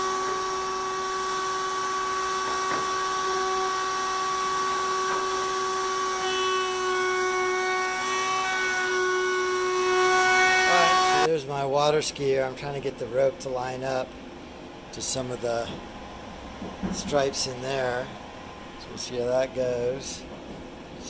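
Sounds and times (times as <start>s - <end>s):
router cutting wood: 0.0s - 11.3s.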